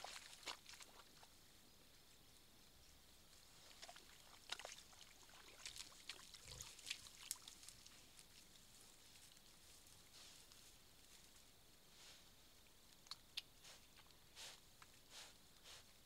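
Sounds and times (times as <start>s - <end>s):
animals slurping and splashing water: 0.0s - 1.3s, 3.6s - 8.2s.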